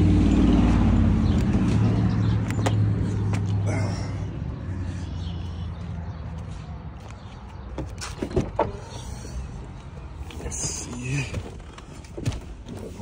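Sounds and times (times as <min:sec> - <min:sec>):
low vehicle rumble: 0:00.0 - 0:13.0.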